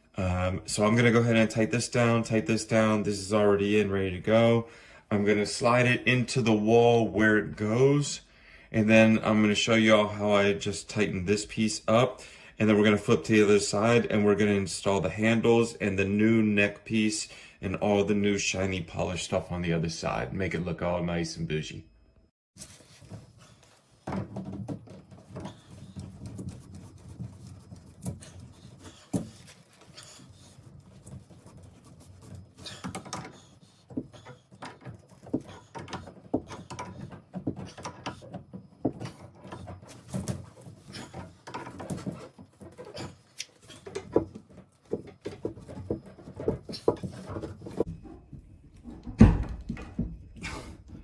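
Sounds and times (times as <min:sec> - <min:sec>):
handling rustle: 0:22.6 - 0:48.3.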